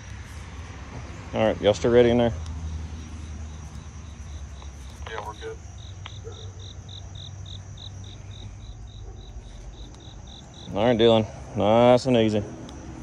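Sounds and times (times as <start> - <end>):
cricket chirping: 0.0 - 13.0
distant voice: 4.8 - 6.8
steady low rumble: 6.8 - 13.0.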